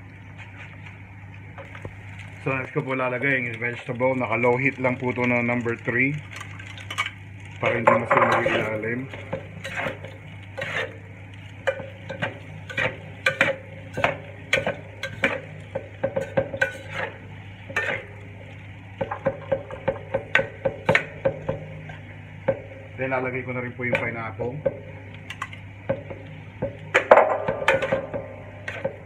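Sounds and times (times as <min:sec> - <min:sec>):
steady low hum: 0:00.0 - 0:29.0
metal spatula scraping metal pan: 0:07.9 - 0:11.0, 0:11.7 - 0:15.4, 0:16.2 - 0:18.1.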